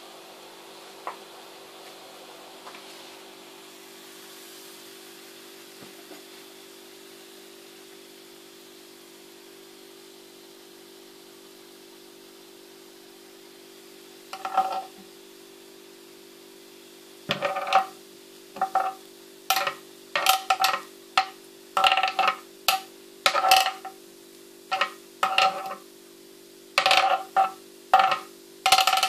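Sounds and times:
metal spoon clinking on glass bowl: 18.6s - 23.9s, 24.7s - 25.8s, 26.8s - 29.0s.

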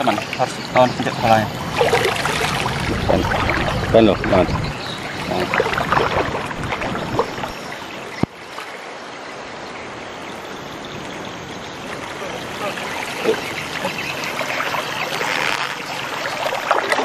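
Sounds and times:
flowing water rushing: 0.0s - 17.0s
water splashing and sloshing: 0.0s - 17.0s.

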